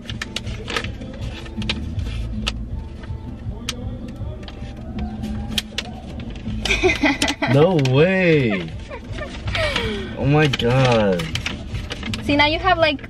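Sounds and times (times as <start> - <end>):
paper rustling and crinkling: 0.0 - 3.1, 4.4 - 13.0
low rumble inside a car: 12.2 - 13.0.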